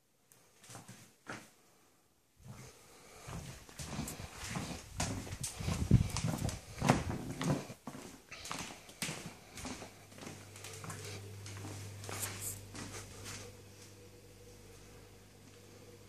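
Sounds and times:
low steady hum: 1.5 - 16.0
footsteps on wooden floor: 2.4 - 13.4.

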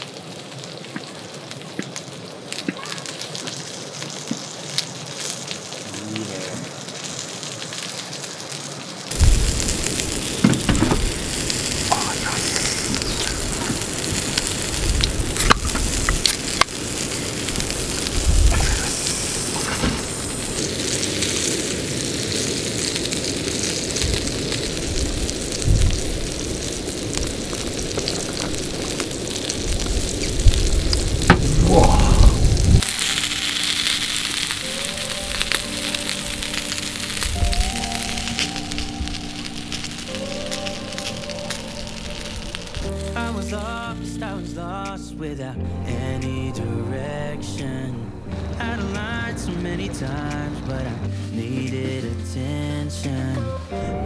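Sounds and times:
skewers sizzling on griddle: 0.0 - 54.0
fat popping and crackling: 0.9 - 7.3, 9.1 - 44.0
music: 9.2 - 16.6, 32.8 - 54.0.

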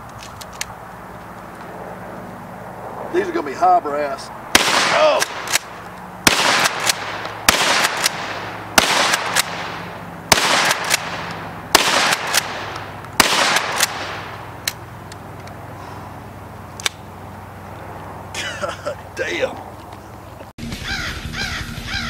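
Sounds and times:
shotgun shots: 4.5 - 14.6
shotgun pump clacks: 5.2 - 5.7, 10.5 - 11.4.

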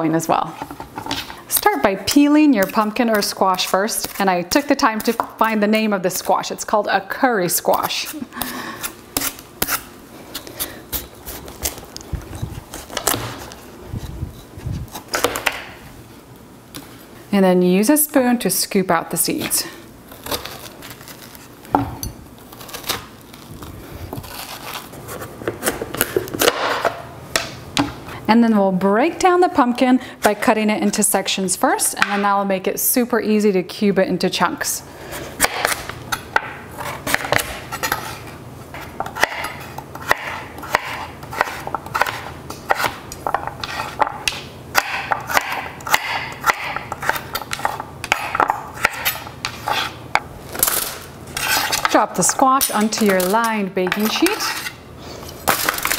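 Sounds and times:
metal spoon scraping squash: 0.2 - 6.8, 7.5 - 15.3, 24.0 - 26.5, 35.0 - 44.1, 44.7 - 55.9
knife cutting on cutting board: 39.2 - 43.0.

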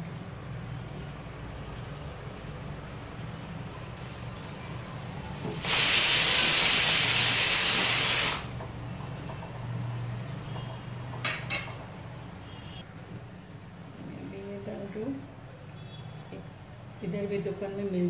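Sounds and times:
pressure cooker steam hissing: 5.4 - 8.6.

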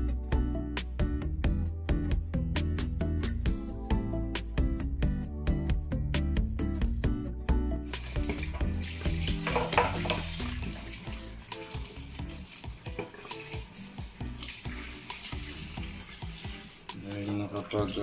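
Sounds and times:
background music: 0.0 - 18.0
water splashing: 7.9 - 18.0
tap running into steel sink: 8.2 - 10.9, 12.7 - 13.7
fish knocking against sink: 9.3 - 10.4.

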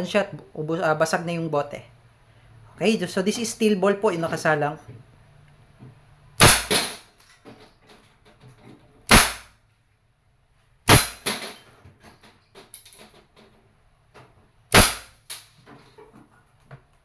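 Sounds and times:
air pistol shots: 6.4 - 7.1, 9.1 - 9.6, 10.9 - 11.6, 14.7 - 15.5
pellets hitting targets: 6.4 - 7.2, 9.1 - 9.5, 10.9 - 11.7, 14.7 - 15.6.

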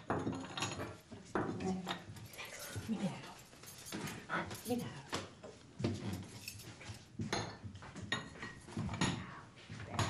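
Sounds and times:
china cups and cutlery clinking: 0.0 - 5.0.

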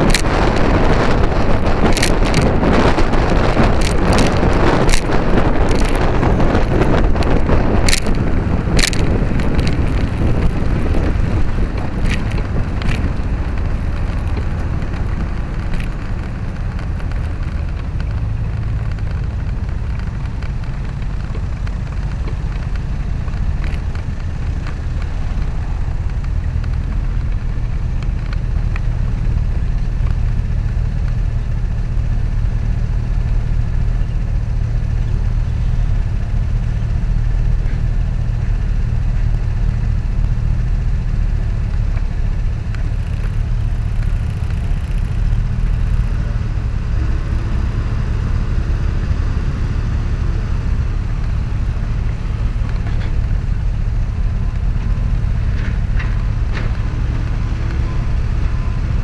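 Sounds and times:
sharp clicks: 0.0 - 32.3, 39.1 - 48.6
wind and road noise: 0.0 - 59.0.

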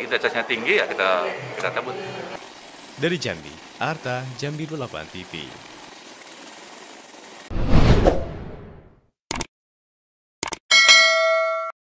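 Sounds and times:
bright bell-like ding: 10.7 - 11.8.

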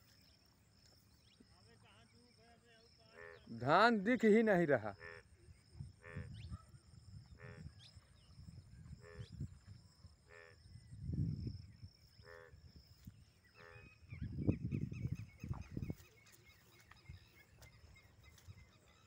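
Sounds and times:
frog croaking: 2.3 - 16.1.

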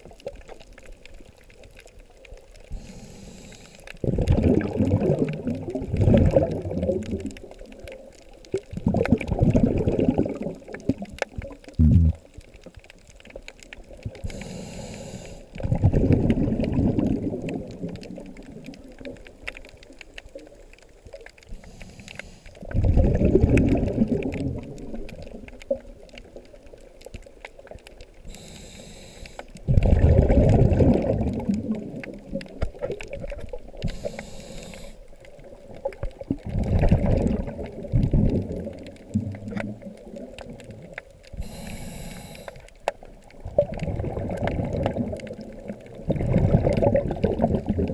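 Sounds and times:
exhaled bubbles gurgling: 0.0 - 47.9
regulator inhale hiss: 2.7 - 4.0, 14.2 - 15.6, 21.5 - 22.7, 28.2 - 29.6, 33.8 - 35.2, 41.3 - 42.9.

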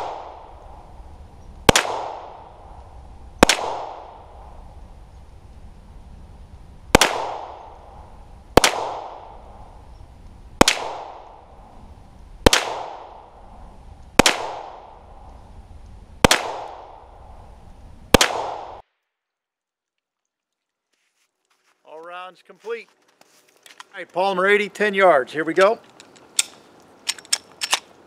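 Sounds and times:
pistol shots with echo: 1.7 - 2.4, 7.0 - 7.7, 8.6 - 9.3, 12.5 - 13.2, 16.2 - 17.0.

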